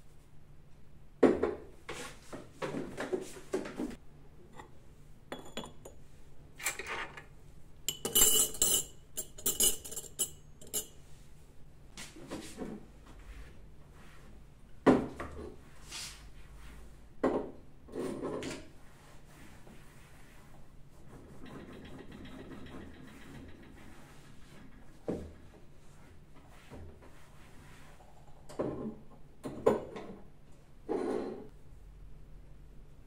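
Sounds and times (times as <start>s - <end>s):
glass cups and teaspoons clinking: 7.9s - 11.0s.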